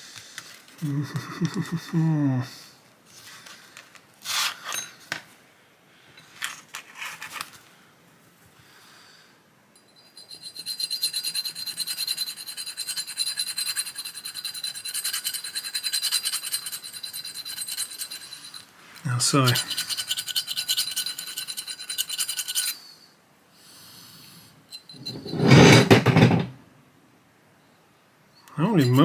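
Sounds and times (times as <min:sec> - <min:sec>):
thin metallic ring: 0:04.6 - 0:05.0, 0:09.8 - 0:22.8, 0:24.7 - 0:25.7, 0:28.6 - 0:29.0
file rasping on steel: 0:10.2 - 0:18.6, 0:19.4 - 0:22.8, 0:28.6 - 0:29.0
metal files clinking: 0:28.6 - 0:29.0.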